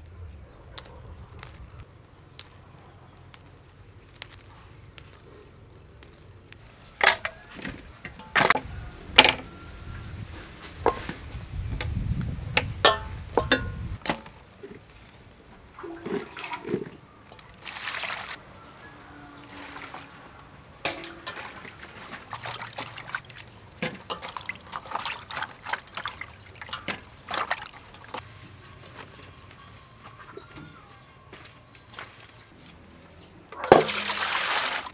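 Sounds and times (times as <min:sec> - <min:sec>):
knocks on metal basin: 0:12.8 - 0:14.2
hands splashing water: 0:15.8 - 0:18.4, 0:20.9 - 0:28.2, 0:33.6 - 0:34.9
water rushing: 0:17.5 - 0:18.4, 0:33.6 - 0:34.9.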